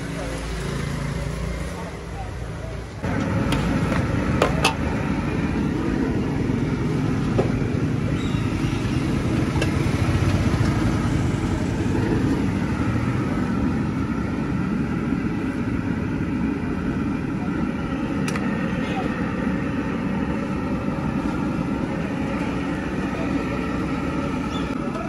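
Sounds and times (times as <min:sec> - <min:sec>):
road traffic rumble: 0:00.0 - 0:25.0.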